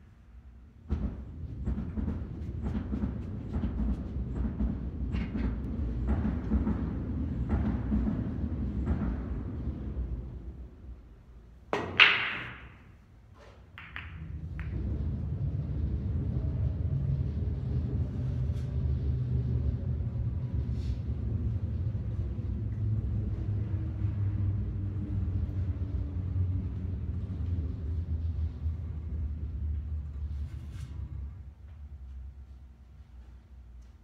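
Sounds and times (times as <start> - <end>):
pool balls clacking: 11.7 - 14.9
cue tip clicking cue ball: 13.8 - 14.8
steady low rumble: 14.2 - 30.3.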